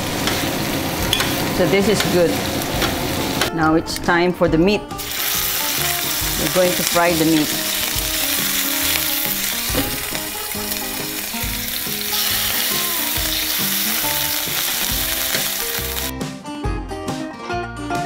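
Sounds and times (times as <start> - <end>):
beef sizzling in a frying pan: 0.0 - 3.5, 5.0 - 16.1
quiet background music: 1.0 - 18.0
metal tongs turning meat: 5.1 - 16.1.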